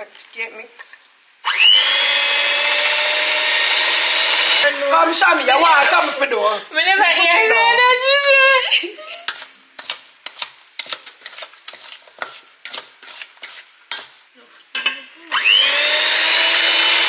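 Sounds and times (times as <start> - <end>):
electric mixer motor whining: 1.5 - 4.9, 15.3 - 17.0.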